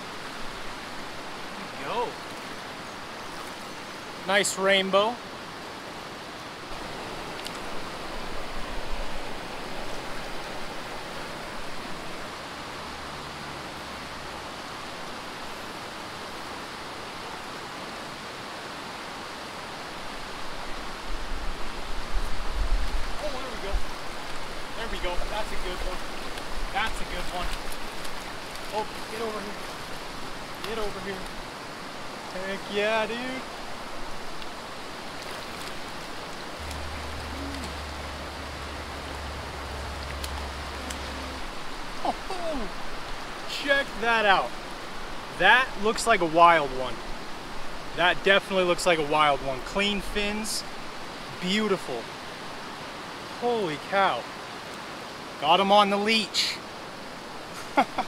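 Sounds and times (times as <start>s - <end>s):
creek rushing: 0.0s - 58.0s
low uneven rumble: 35.7s - 43.2s.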